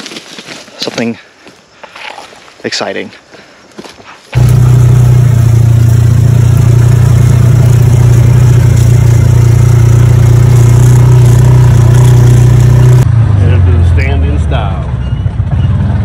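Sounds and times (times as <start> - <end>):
vehicle engine drone: 4.4 - 16.0.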